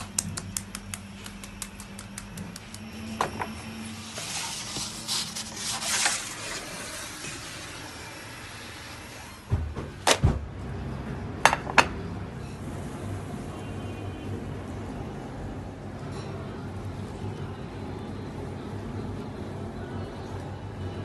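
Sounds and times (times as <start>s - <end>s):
food scraping on wooden peel: 4.0s - 7.8s.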